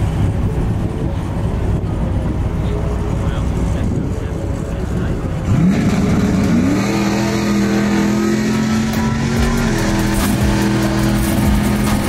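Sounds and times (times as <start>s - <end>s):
race car engine idling: 0.0s - 6.8s.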